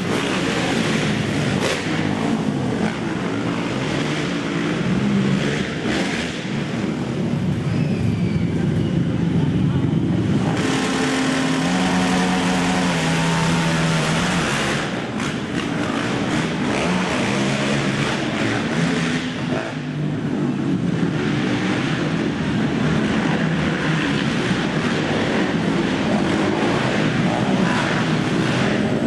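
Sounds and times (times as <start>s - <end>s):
quad engines revving: 0.0s - 29.0s.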